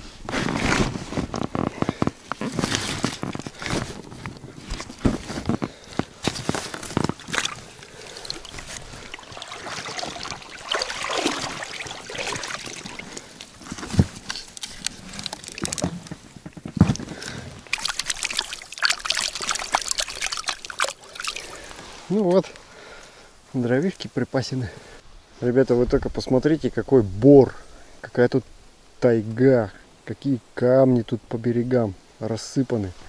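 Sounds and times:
water sloshing and trickling: 2.5s - 22.1s.

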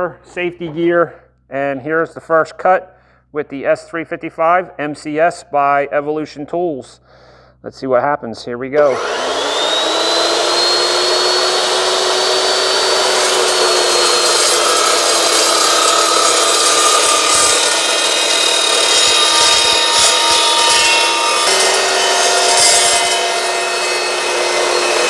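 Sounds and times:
chop saw cutting steel tubing: 8.8s - 25.0s.

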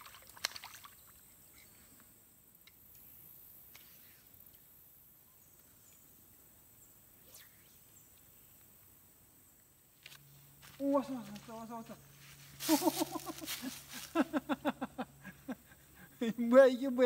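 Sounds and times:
high-pitched hiss: 11.7s - 14.7s.

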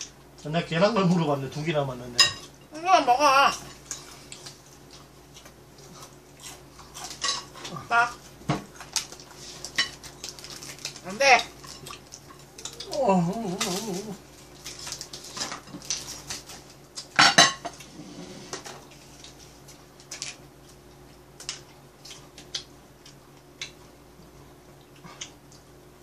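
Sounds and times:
tableware clatter: 17.2s - 17.7s.

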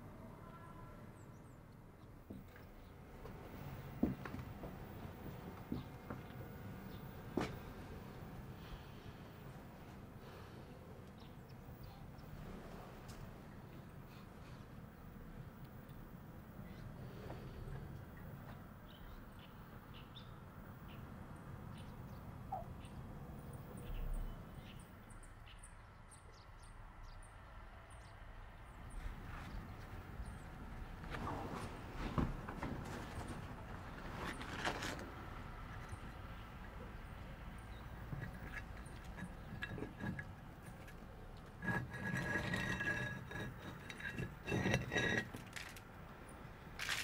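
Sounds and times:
low steady background rumble: 0.0s - 47.0s
small birds chirping: 10.2s - 12.4s, 16.6s - 30.8s, 35.6s - 40.2s
brick grating against mortar: 38.1s - 40.8s, 41.5s - 45.8s.

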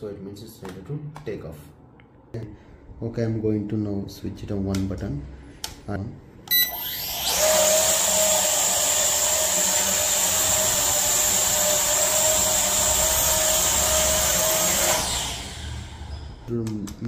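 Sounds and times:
short beep: 6.5s - 6.9s
drone propellers whining: 6.6s - 16.5s.

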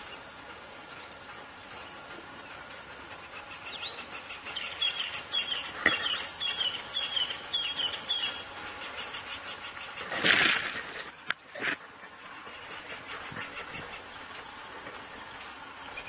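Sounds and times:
bird chirping: 3.2s - 10.1s, 12.4s - 16.0s.

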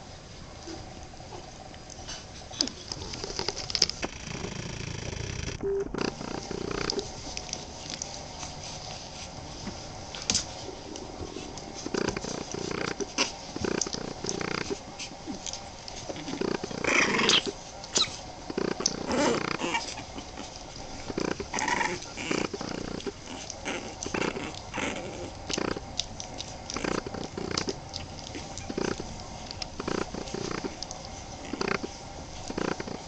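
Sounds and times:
small clicks and rustles: 1.4s - 9.0s
puppies whining: 11.3s - 33.0s.

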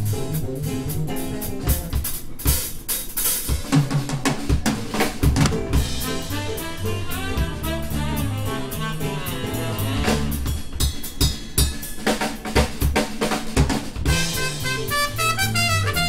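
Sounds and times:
bass: 0.0s - 16.0s
drums and cymbals: 0.0s - 16.0s
horns: 5.7s - 10.6s, 14.1s - 16.0s.

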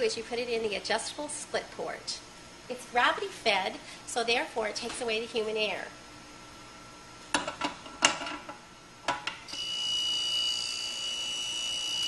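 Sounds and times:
drill sharpener whining: 9.6s - 12.0s.

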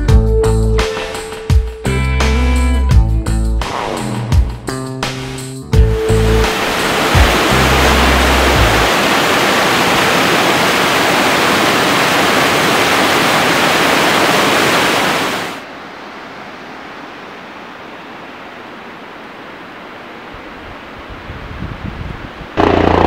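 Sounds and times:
loud rushing noise: 3.6s - 4.7s, 5.8s - 15.6s.

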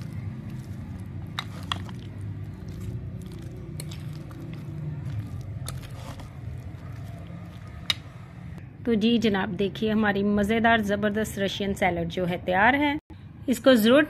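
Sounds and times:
spoon squishing creamy salad: 0.0s - 8.6s.

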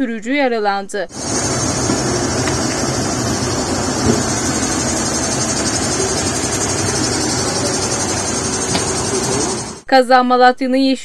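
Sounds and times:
vehicle engine idling: 1.2s - 9.8s.

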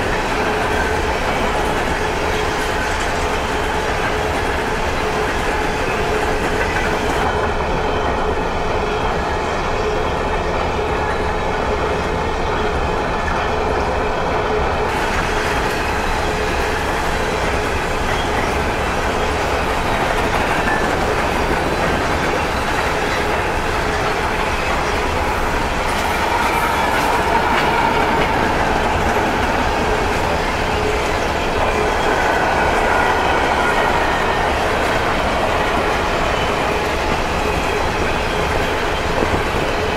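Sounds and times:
clickety-clack over rail joints: 0.0s - 39.9s
train wheels rumbling on rail: 0.0s - 39.9s.

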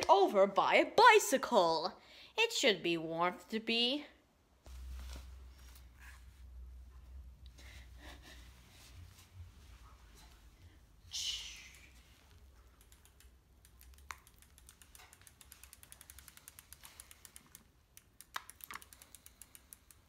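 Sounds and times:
bicycle freewheel ticking: 12.8s - 20.0s.

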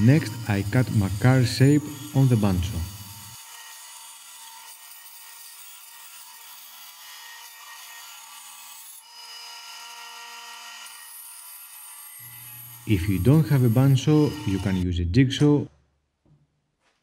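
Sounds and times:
bandsaw cutting wood: 0.0s - 14.9s.

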